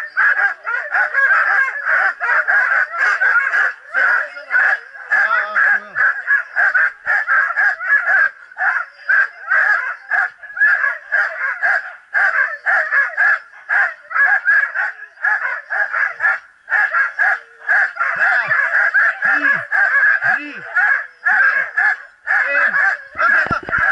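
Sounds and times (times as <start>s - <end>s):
dog yelping and barking: 0.0s - 23.9s.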